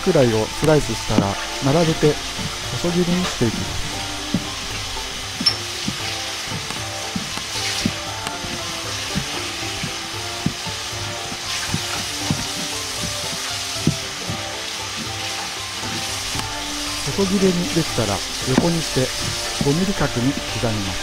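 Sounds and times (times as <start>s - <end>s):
steady hiss: 0.0s - 21.0s
cleaver knocking on cutting board: 5.4s - 10.7s, 11.3s - 14.4s.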